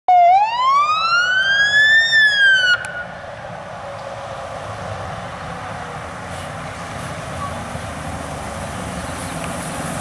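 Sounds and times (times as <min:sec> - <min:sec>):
fire engine siren wailing: 0:00.1 - 0:03.6
truck engine and tyres rumbling: 0:00.1 - 0:10.0.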